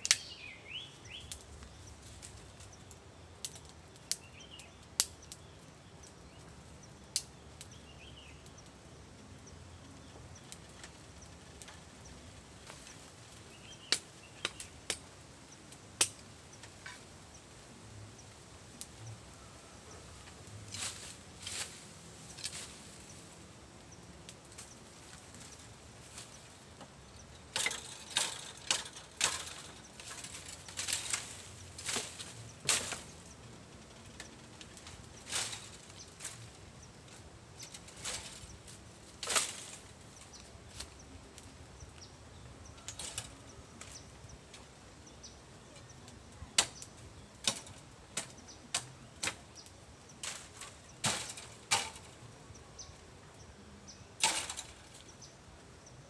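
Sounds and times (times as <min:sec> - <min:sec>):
dry leaves and twigs crackling: 0:00.0 - 0:56.0.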